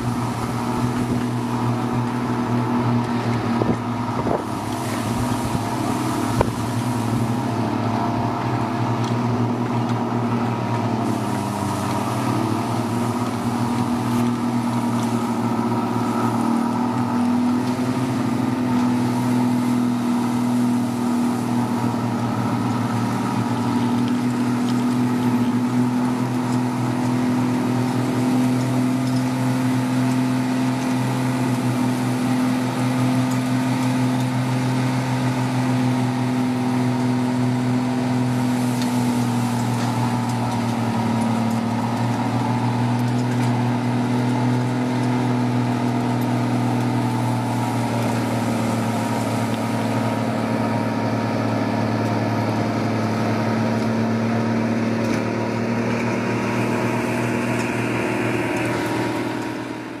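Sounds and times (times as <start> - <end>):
diesel engine running: 0.0 - 60.0.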